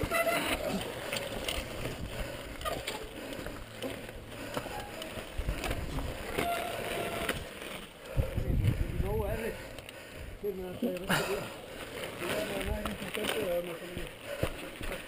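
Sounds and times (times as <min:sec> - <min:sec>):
bike tyres crunching on gravel: 0:00.0 - 0:15.0
wind buffeting microphone: 0:05.1 - 0:06.3, 0:07.1 - 0:10.5.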